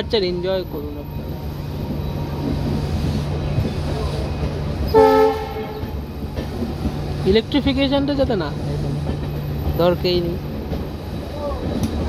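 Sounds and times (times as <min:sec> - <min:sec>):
diesel train rumbling: 0:00.0 - 0:12.0
train horn blast: 0:04.9 - 0:05.9.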